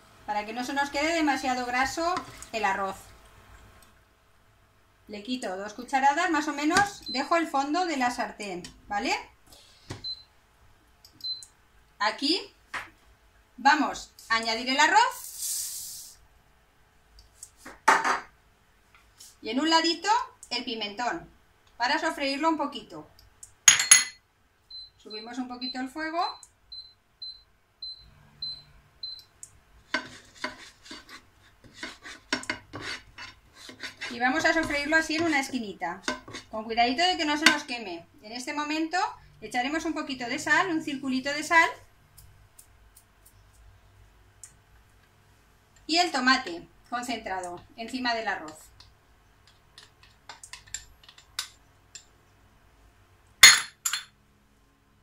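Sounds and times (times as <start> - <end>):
spoon stirring in frying pan: 1.5 - 2.7, 29.8 - 36.6, 47.5 - 52.2
bowl clinking on a stone counter: 23.7 - 24.2, 53.4 - 54.2
spatula scraping a ceramic bowl: 29.9 - 35.4, 36.0 - 36.6.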